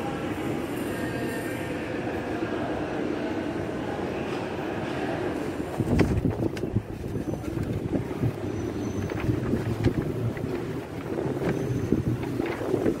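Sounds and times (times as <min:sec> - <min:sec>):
wind buffeting microphone: 0:05.7 - 0:13.0.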